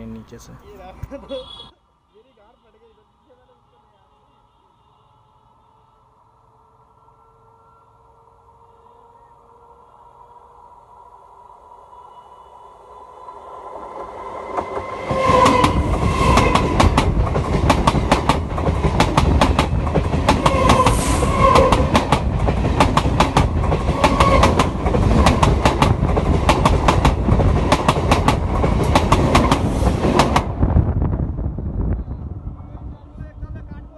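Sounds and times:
train rumbling overhead: 5.4 - 33.9
wheels clacking on rails: 14.0 - 30.6.

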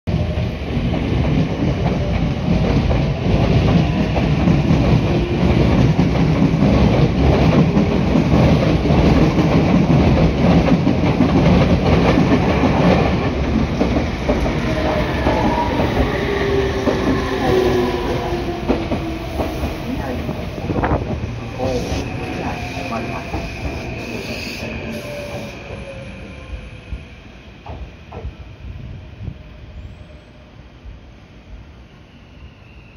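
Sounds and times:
trains rumbling past: 0.1 - 32.9
train brakes whining: 14.4 - 26.8.

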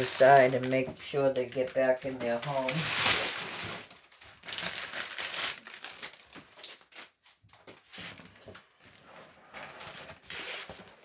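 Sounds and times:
plastic bags and sheet rustling: 0.0 - 11.0.

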